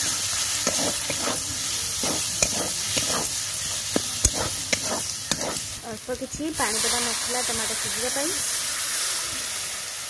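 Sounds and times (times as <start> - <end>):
metal spatula scraping pan: 0.0 - 5.8
tomatoes sizzling in hot oil: 0.0 - 10.0.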